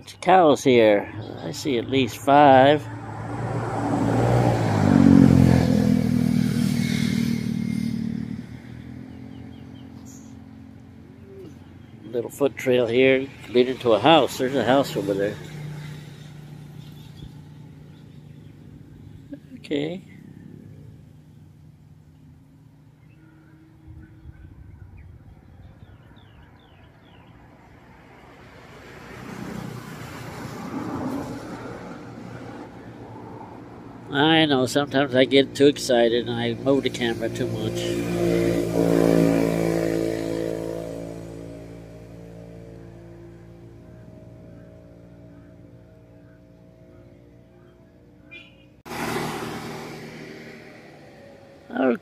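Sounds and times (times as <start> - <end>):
vehicle engine passing by: 0.7 - 52.0
bird chirping: 8.6 - 12.5, 15.5 - 27.5, 43.2 - 48.8.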